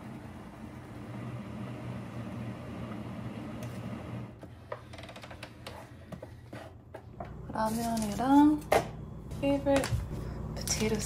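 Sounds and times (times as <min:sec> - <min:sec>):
hot-water dispenser humming: 0:00.0 - 0:04.5.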